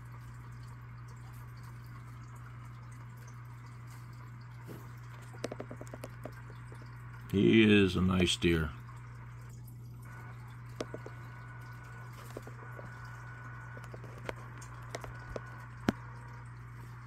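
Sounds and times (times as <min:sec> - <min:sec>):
steady low hum: 0:00.0 - 0:17.0
faint clicks and taps: 0:04.6 - 0:07.0, 0:10.7 - 0:11.5, 0:12.2 - 0:16.4.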